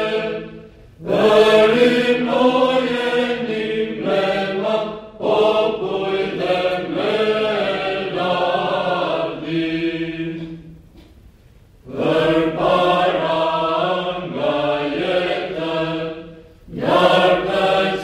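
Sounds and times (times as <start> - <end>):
choir chanting in unison: 0.0 - 10.8, 11.8 - 18.0.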